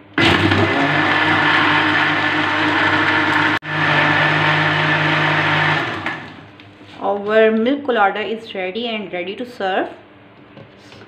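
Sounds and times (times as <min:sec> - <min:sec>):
blender whirring: 0:00.0 - 0:06.5.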